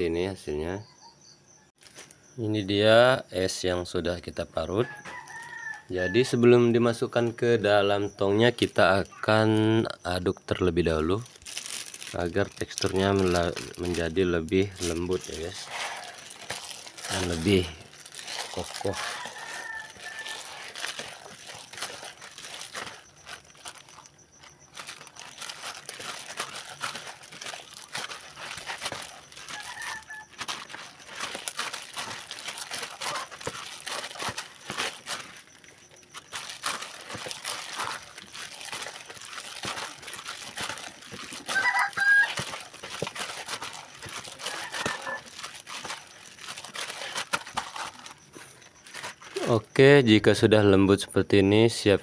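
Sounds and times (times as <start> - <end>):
plastic glove crinkling: 10.0 - 50.5
icy slush squishing: 10.6 - 50.0
chicken clucking: 29.4 - 30.8, 33.0 - 33.4, 44.4 - 45.3.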